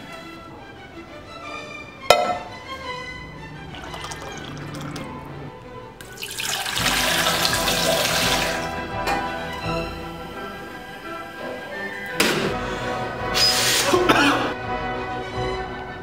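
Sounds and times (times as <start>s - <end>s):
orchestral music: 0.0s - 16.0s
pan knocking on stone counter: 2.1s - 2.6s
water pouring into a saucepan: 3.7s - 5.2s, 6.0s - 8.8s.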